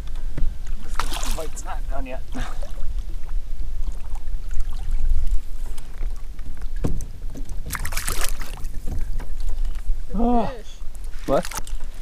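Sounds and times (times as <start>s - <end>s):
water splashing: 0.6s - 12.0s
knock on kayak: 6.8s - 7.5s.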